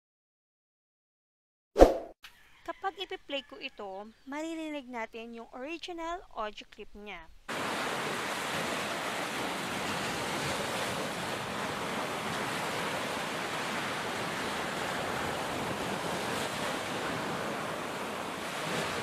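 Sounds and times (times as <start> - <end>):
waves breaking on a beach: 7.5 - 19.0.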